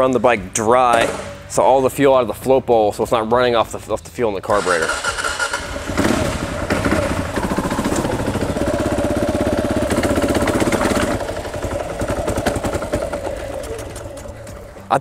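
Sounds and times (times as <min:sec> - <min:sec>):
motorcycle engine under throttle: 0:04.6 - 0:14.9.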